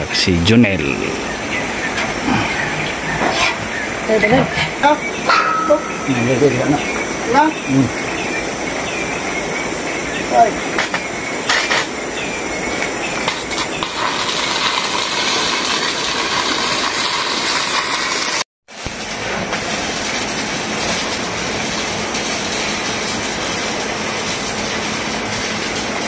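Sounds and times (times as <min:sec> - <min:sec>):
welding crackling hiss: 0:00.1 - 0:26.0.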